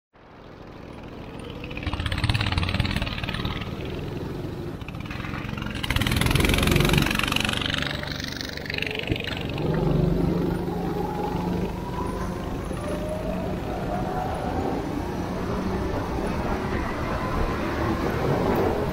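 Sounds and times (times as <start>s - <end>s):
go-kart engine running: 0.2s - 18.9s.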